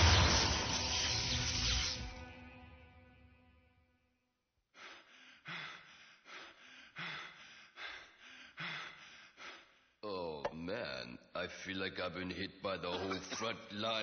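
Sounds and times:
person panting heavily: 4.7 - 10.0.

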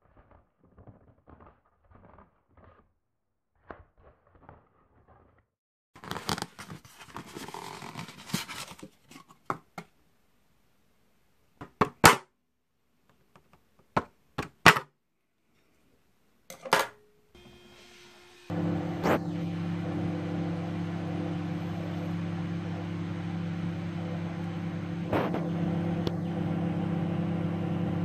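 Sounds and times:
microwave oven humming: 17.4 - 28.0.

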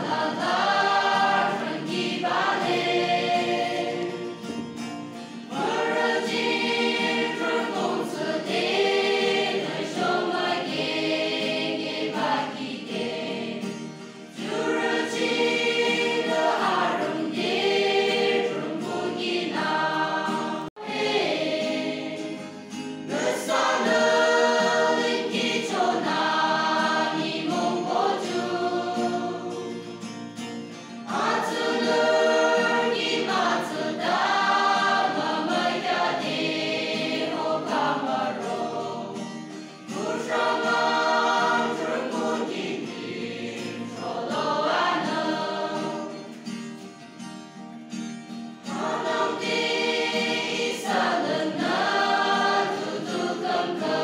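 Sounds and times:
youth choir singing a hymn: 0.0 - 30.1, 30.9 - 46.6, 48.6 - 54.0.

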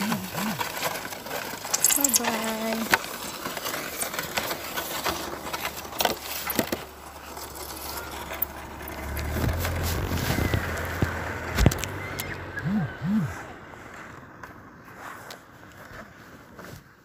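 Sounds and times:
clicks and rustles: 0.0 - 12.4
vehicle engine humming: 0.0 - 16.6.

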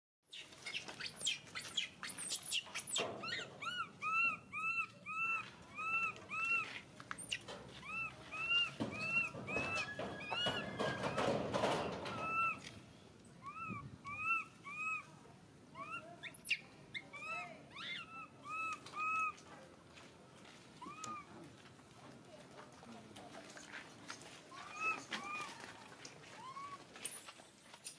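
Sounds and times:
infant monkey crying: 2.1 - 11.3, 12.1 - 12.6, 13.4 - 15.1, 15.8 - 19.4, 20.8 - 21.3, 24.7 - 25.6.

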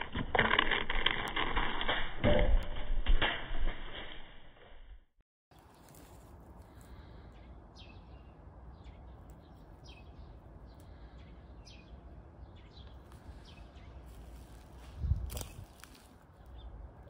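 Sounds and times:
bird chirping: 7.2 - 14.4.

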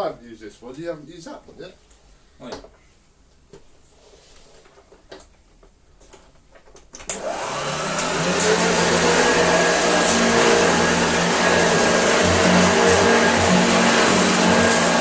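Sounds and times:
vacuum cleaner motor whining: 7.1 - 15.0.

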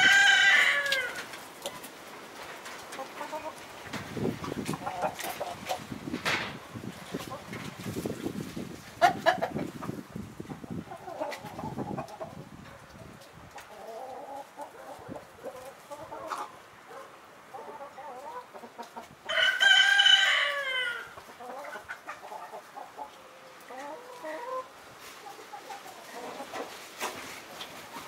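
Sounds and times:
rooster crowing: 0.0 - 1.2, 19.3 - 21.2
chickens clucking softly: 2.7 - 6.0, 6.8 - 28.0.

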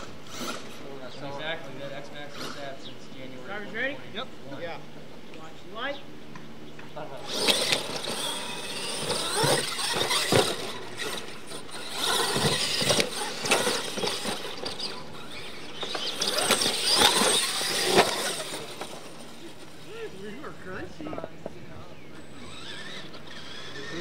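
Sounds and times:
rc truck motor whine: 0.0 - 2.9, 7.2 - 24.0
tyres scrabbling on dirt: 7.2 - 24.0
trucks thumping on landing: 7.4 - 19.2.

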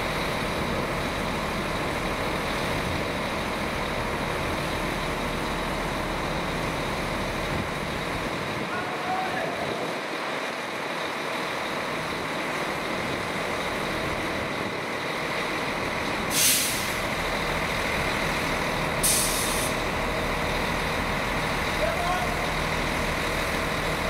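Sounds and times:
air brake hissing: 16.3 - 17.1, 19.0 - 19.8.

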